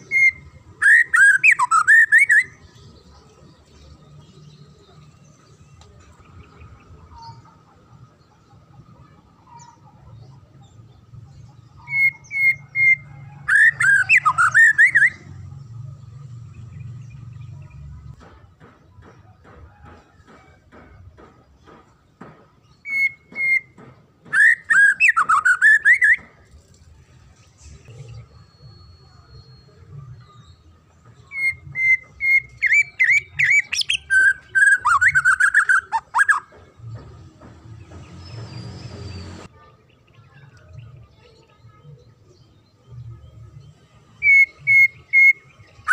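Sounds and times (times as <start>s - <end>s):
bird singing whistled notes: 0.0s - 2.8s, 11.5s - 15.4s, 22.8s - 26.2s, 28.1s - 36.5s, 43.2s - 45.9s.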